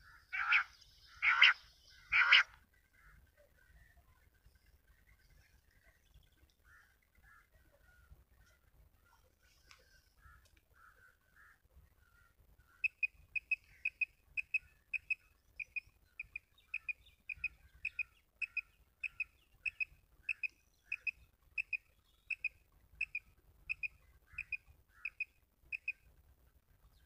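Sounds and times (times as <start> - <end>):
quail call chirps: 0.0 - 3.2, 12.2 - 26.0
fainter lower chirps: 12.8 - 26.0.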